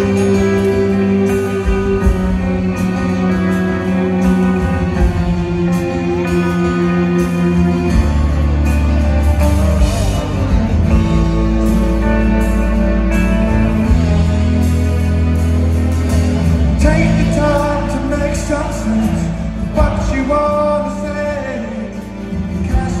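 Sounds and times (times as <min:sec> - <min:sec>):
live rock band playing: 0:00.0 - 0:23.0
man singing: 0:16.7 - 0:23.0.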